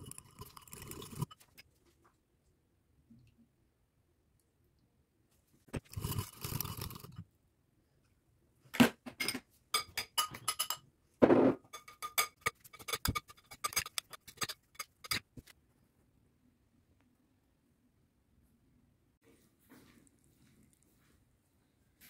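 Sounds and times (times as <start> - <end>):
metal spoons clinking on glass bowl: 9.8 - 10.9, 11.7 - 15.2.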